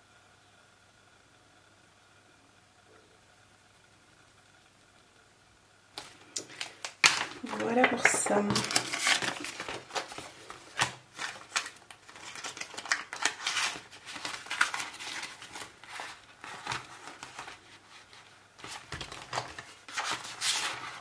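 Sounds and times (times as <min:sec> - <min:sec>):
plastic pockets and paper rustling: 0:06.0 - 0:21.0.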